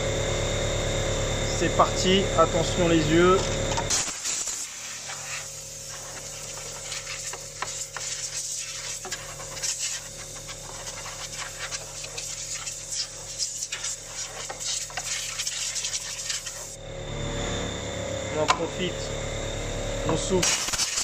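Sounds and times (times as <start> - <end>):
compressed air hissing: 3.8 - 16.8, 20.4 - 21.0.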